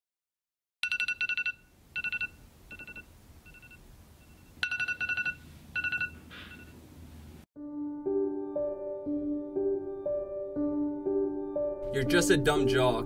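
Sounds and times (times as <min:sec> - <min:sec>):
phone alarm beeping: 0:00.8 - 0:06.8.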